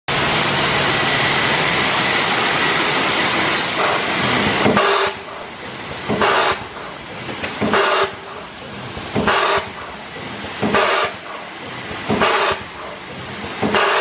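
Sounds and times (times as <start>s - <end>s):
packing machine running: 0.1s - 14.0s
hissing bursts: 0.2s - 14.0s.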